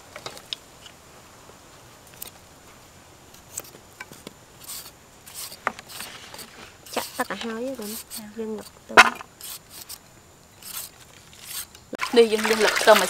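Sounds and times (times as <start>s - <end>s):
faint background hiss: 0.0s - 13.0s
peeler scraping radish: 4.6s - 10.0s, 10.6s - 11.8s.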